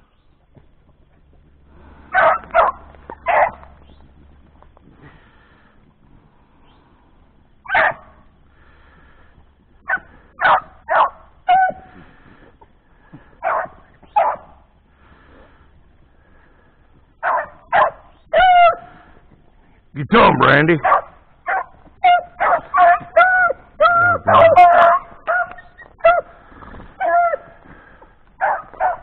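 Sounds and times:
hunting dogs barking: 0:01.7 - 0:04.0, 0:07.6 - 0:08.4, 0:09.8 - 0:12.2, 0:13.2 - 0:14.8, 0:17.2 - 0:19.2, 0:20.6 - 0:29.0.

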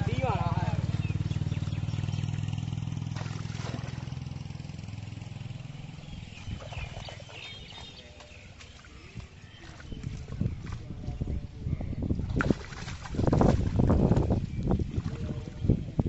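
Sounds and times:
small engine running: 0:00.0 - 0:08.0.

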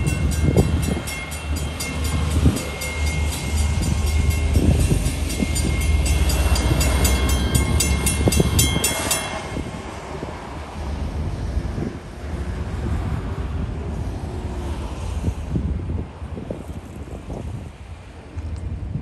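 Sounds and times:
railroad crossing bell dinging: 0:00.0 - 0:10.8
diesel locomotive rumble: 0:00.0 - 0:16.4.

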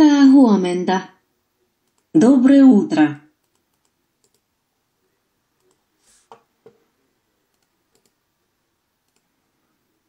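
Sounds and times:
computer mouse clicks: 0:01.8 - 0:02.1, 0:03.4 - 0:04.5, 0:05.6 - 0:06.8, 0:07.5 - 0:08.2, 0:09.0 - 0:09.3.

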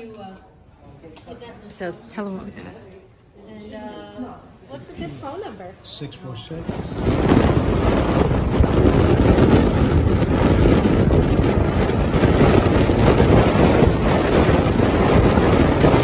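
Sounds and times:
wind buffeting microphone: 0:06.3 - 0:16.0.

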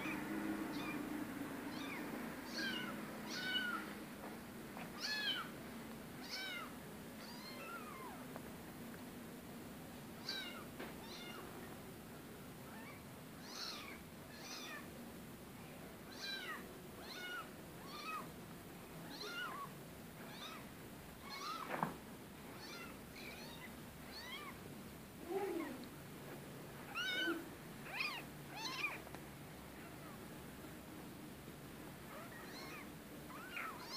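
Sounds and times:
kittens mewing: 0:01.7 - 0:04.0, 0:10.2 - 0:11.4, 0:12.7 - 0:14.9, 0:19.0 - 0:21.8, 0:26.9 - 0:29.1, 0:32.1 - 0:33.9.

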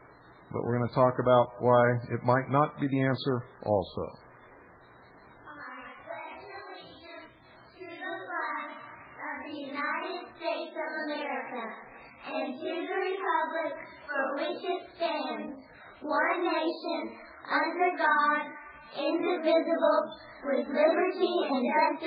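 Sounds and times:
children singing together: 0:07.8 - 0:22.0.

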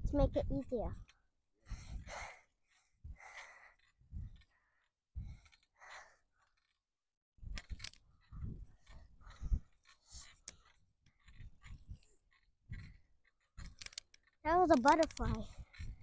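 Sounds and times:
person breathing heavily: 0:01.6 - 0:03.9.

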